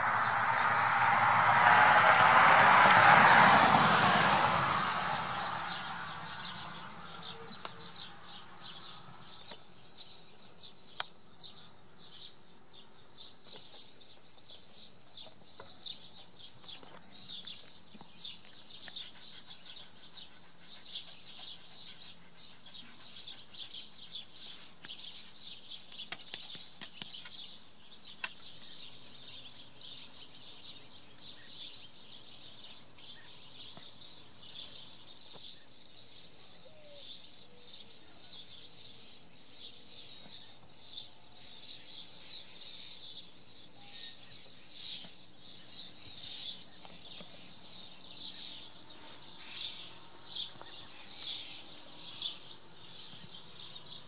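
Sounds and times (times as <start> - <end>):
birds chirping chorus: 0.0 - 54.0.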